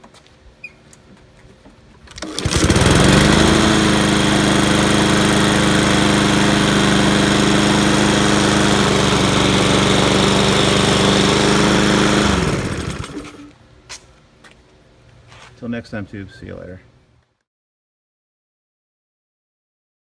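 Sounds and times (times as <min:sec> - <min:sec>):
lawn mower engine running: 0:02.1 - 0:13.5.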